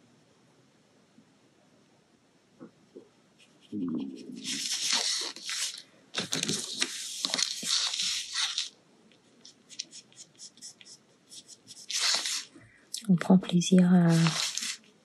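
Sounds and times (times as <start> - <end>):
paper rustling: 4.2 - 12.6, 14.1 - 14.9
pencil scratching on paper: 9.5 - 12.5.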